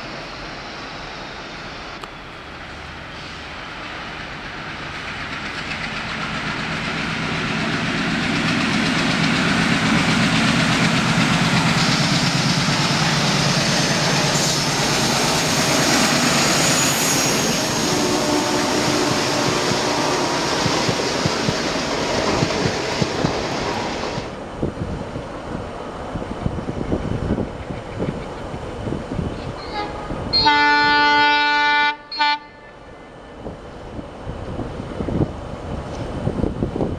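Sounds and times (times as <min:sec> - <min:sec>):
diesel locomotive engine drone: 0:00.0 - 0:36.9
train wheels clattering: 0:04.0 - 0:24.3.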